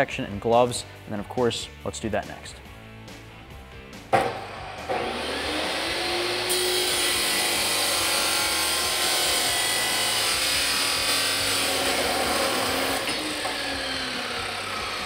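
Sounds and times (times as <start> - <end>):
sharp knock: 4.1 - 4.5
cut-off wheel grinding metal pipe: 4.1 - 15.0
saw motor spinning up: 4.1 - 15.0.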